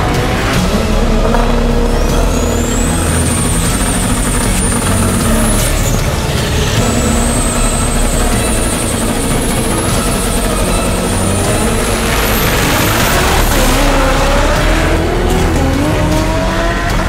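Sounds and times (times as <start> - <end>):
high turbo whistle: 0.0 - 17.0
loud car engine running: 0.0 - 17.0.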